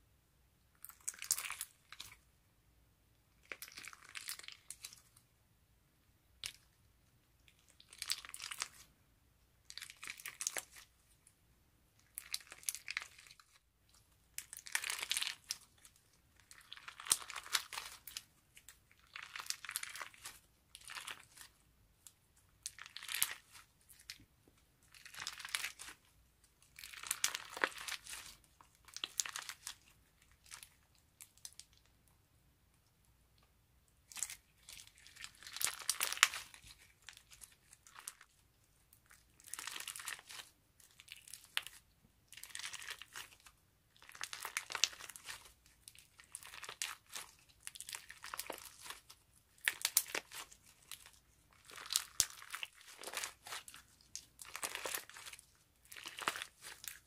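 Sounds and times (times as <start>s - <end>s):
crunchy slime crackling: 9.6s - 11.0s, 12.0s - 13.6s, 14.3s - 31.9s, 34.0s - 57.0s.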